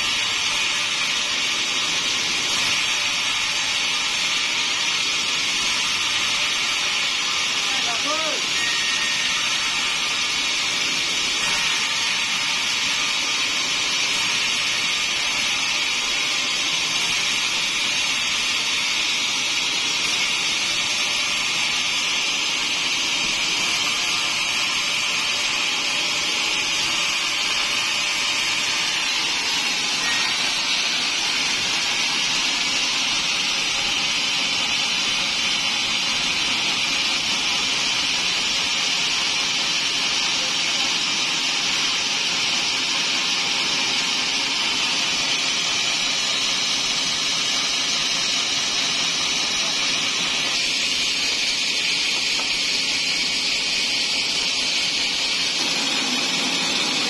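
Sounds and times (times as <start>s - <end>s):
band saw cutting wood: 0.0s - 57.0s.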